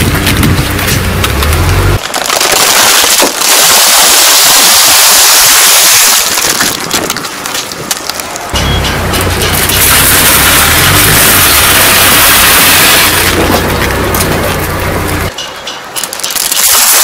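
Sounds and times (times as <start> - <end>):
low engine hum: 0.0 - 2.0, 8.6 - 15.3
crisp bag crackling and crunching: 2.0 - 8.6, 16.0 - 17.0.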